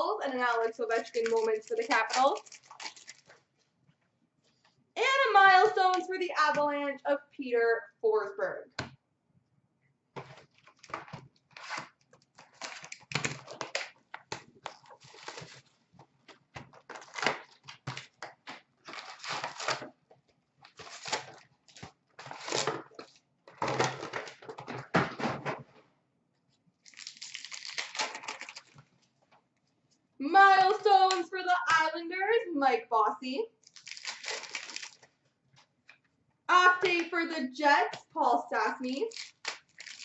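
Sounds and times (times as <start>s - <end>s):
card packs rustling and ripping: 1.0s - 3.5s, 10.2s - 15.8s, 16.6s - 20.0s, 20.6s - 25.1s, 26.9s - 28.8s, 33.6s - 35.1s, 39.1s - 40.0s.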